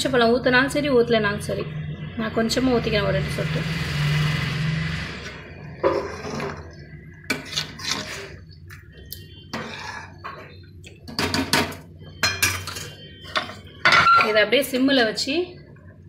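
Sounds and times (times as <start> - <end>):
ladle scraping and knocking pot: 5.8 - 8.4.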